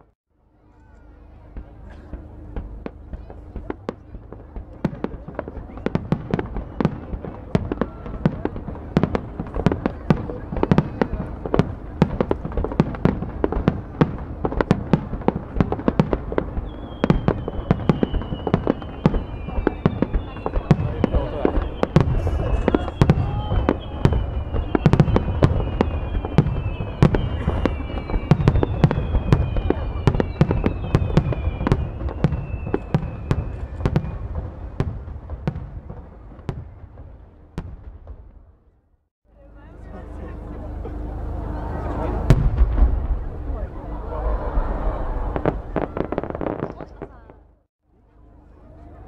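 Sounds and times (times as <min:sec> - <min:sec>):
fireworks bursting: 0:01.4 - 0:38.8, 0:40.9 - 0:47.7
high whistle falling in pitch: 0:16.6 - 0:34.3
low rumble: 0:39.9 - 0:47.7.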